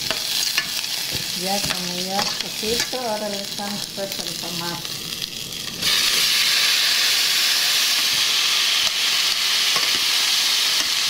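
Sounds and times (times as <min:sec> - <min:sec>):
tomatoes sizzling in hot fat: 0:00.0 - 0:11.0.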